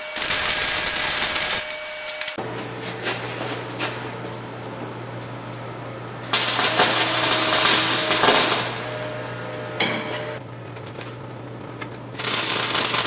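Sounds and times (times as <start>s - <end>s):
welder arc crackling: 0.0s - 2.4s, 6.2s - 10.4s, 12.2s - 13.0s
low electrical hum: 2.4s - 13.0s.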